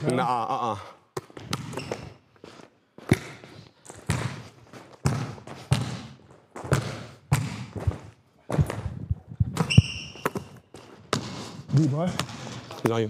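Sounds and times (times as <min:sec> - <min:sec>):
basketball bouncing on gym floor: 0:01.2 - 0:02.2, 0:03.0 - 0:11.4, 0:12.0 - 0:13.0
high squeak: 0:09.6 - 0:10.6.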